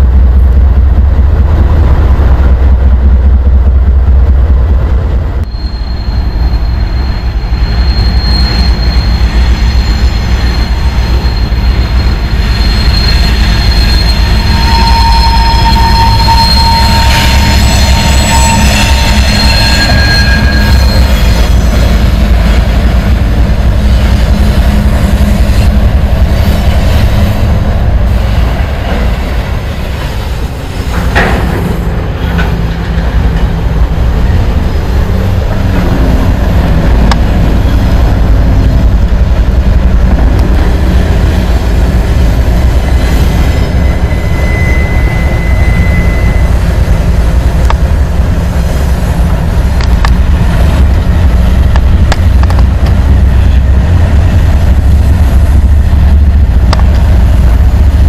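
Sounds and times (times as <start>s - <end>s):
diesel locomotives rumbling on bridge: 0.0s - 58.0s
wheel flange squeal: 5.4s - 22.8s, 40.6s - 47.7s.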